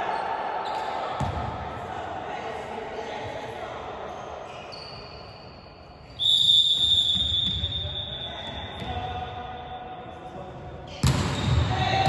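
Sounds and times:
referee's whistle long blast: 6.2 - 8.5
faint high whistle tone: 6.2 - 8.8.

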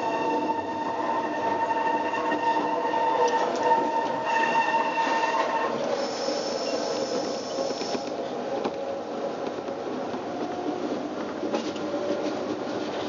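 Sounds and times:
train wheels squealing on rails: 0.0 - 8.4
train running gear rumble: 0.0 - 13.0.

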